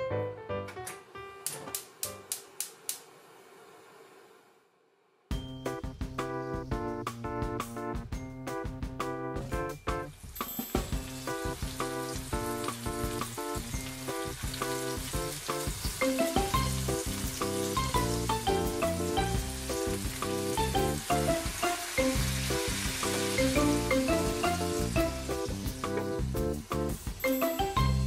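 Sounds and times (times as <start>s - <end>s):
background music with steady beat: 5.3s - 28.0s
meatballs sizzling in frying pan: 10.7s - 28.0s.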